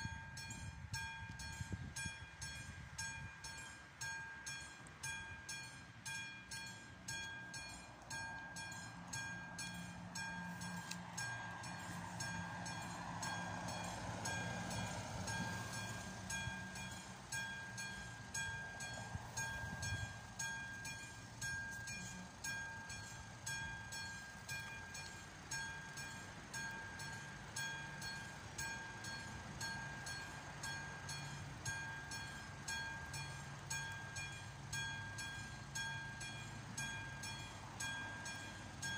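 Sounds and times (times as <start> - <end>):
car engine idling: 6.6 - 38.9.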